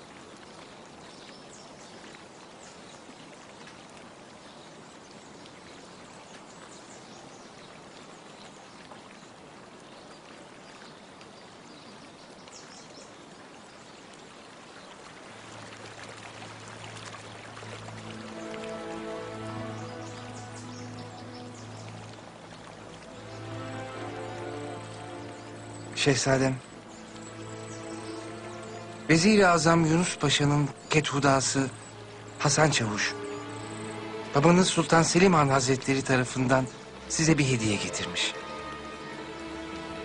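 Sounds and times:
running water hissing: 12.4 - 40.0.

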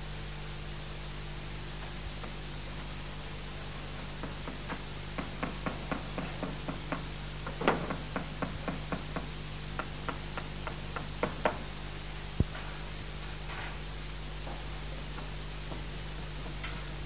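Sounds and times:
steady hiss: 0.0 - 17.0
hammering sharp knocks: 4.2 - 11.6.

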